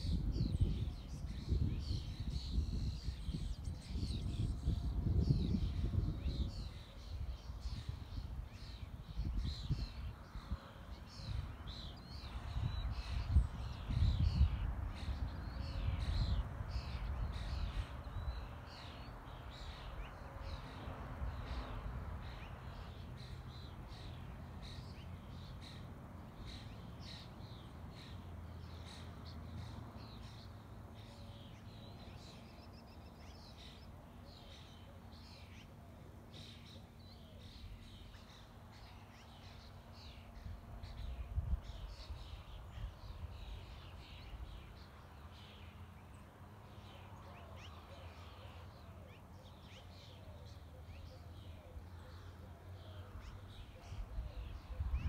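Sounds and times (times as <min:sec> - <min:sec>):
wind rumble on microphone: 0:00.0 - 0:30.4, 0:40.0 - 0:45.6, 0:53.4 - 0:55.0
birds chirping: 0:00.0 - 0:55.0.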